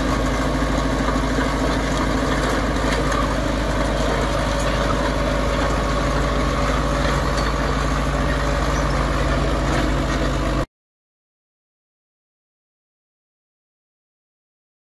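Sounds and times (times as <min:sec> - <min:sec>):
diesel engine idling: 0:00.0 - 0:10.7.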